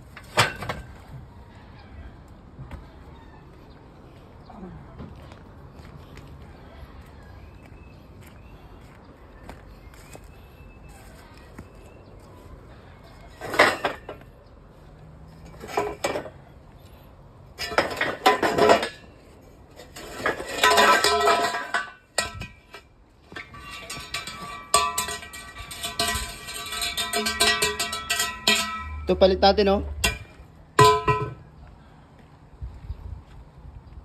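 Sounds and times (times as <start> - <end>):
steel props clanking: 0.0 - 1.1, 13.2 - 14.3, 15.3 - 16.4, 17.6 - 29.3, 29.9 - 31.5.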